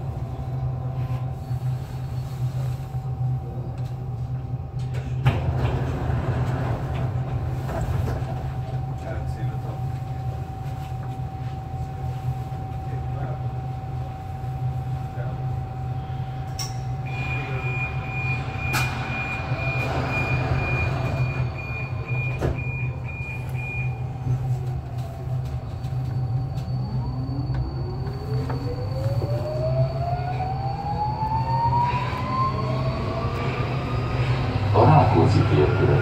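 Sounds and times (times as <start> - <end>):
rapid electronic warning beeps: 17.1 - 24.1.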